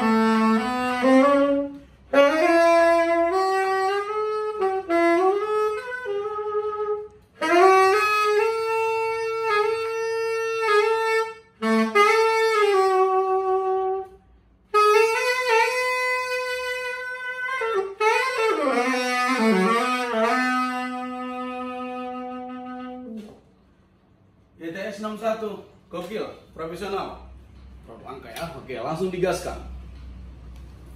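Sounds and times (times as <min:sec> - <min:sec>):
tenor saxophone solo: 0:00.0 - 0:23.4.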